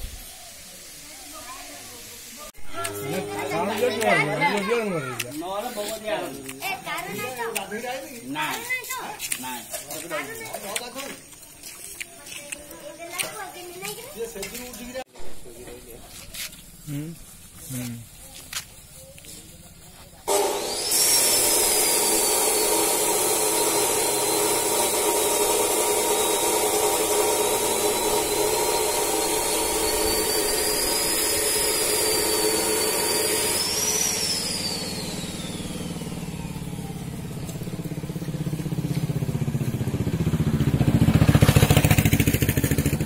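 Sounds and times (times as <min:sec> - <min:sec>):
second engine rising in pitch: 0:02.6 - 0:08.4, 0:20.3 - 0:43.0
vehicle engine whining: 0:02.6 - 0:11.5, 0:22.3 - 0:43.0.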